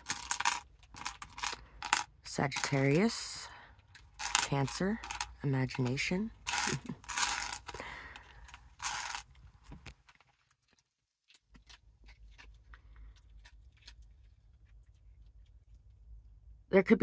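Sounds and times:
small objects clicking on table: 8.8s - 9.2s.

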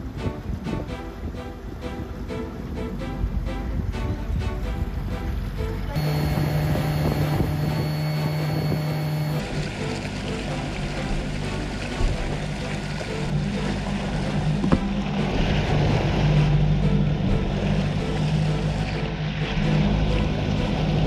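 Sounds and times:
rushing water: 0.0s - 21.0s
wind: 0.0s - 21.0s
outboard motor running: 4.8s - 21.0s.

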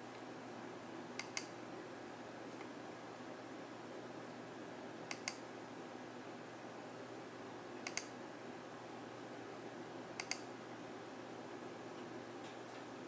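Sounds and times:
low hiss: 0.0s - 13.0s
computer mouse double clicks: 5.1s - 5.4s, 7.8s - 8.1s, 10.2s - 10.4s.

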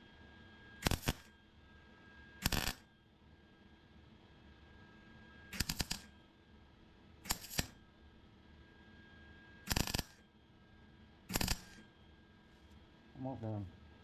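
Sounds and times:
welding arc crackling: 0.8s - 1.3s, 2.4s - 2.8s, 5.6s - 6.1s, 7.3s - 7.7s, 9.7s - 10.2s, 11.3s - 11.8s.

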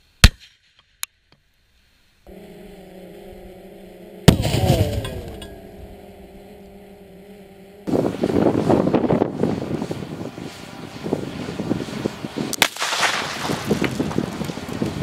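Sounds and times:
steady hum: 2.3s - 15.0s
loud explosion blast: 4.3s - 5.4s.

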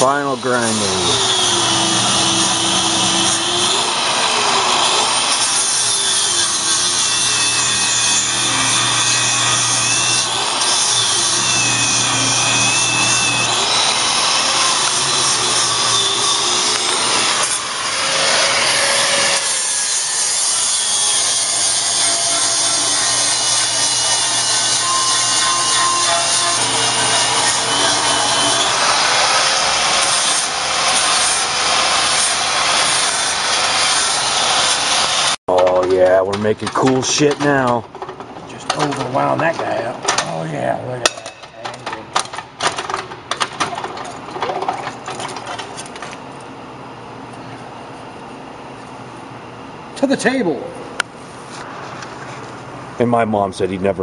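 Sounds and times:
angle grinder grinding metal: 0.0s - 35.7s.

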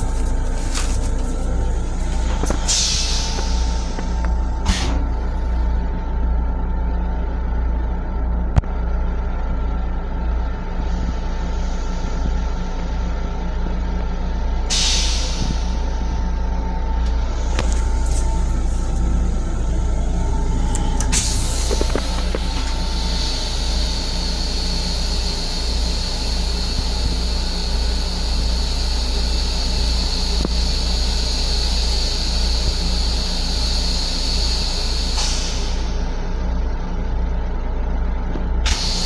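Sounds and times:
moving train rumble: 0.0s - 39.0s
toilet flush hiss: 2.6s - 5.0s, 14.7s - 15.9s, 22.4s - 36.1s.

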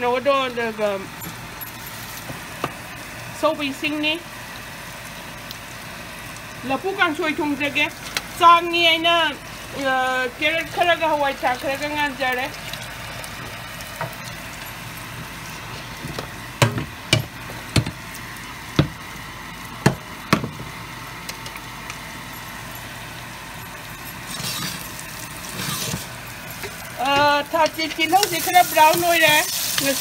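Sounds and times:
food sizzling: 0.0s - 30.0s.

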